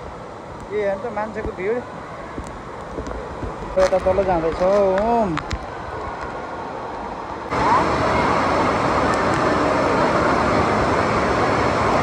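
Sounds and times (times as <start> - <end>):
moving water: 0.0 - 12.0
many voices: 4.5 - 12.0.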